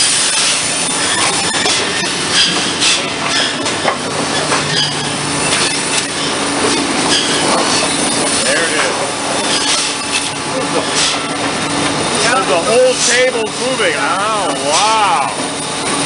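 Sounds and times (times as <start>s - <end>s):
saw squeals: 0.0s - 11.2s
mill machinery running: 0.0s - 16.0s.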